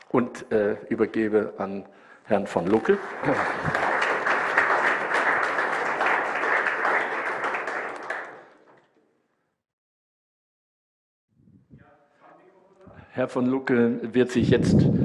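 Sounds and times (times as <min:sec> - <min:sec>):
audience applauding: 0:02.6 - 0:09.0.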